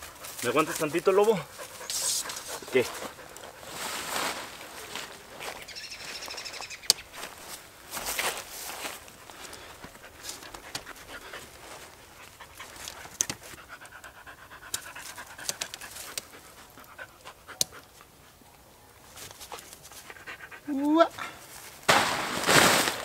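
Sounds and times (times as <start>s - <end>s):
dog panting: 0.0s - 3.7s, 9.3s - 18.6s, 19.4s - 21.4s
rustling: 0.0s - 6.4s, 7.0s - 13.6s, 21.3s - 23.0s.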